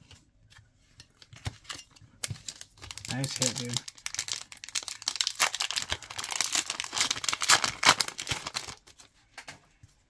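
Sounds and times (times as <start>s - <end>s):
foil wrapper crinkling and tearing: 1.3s - 9.1s.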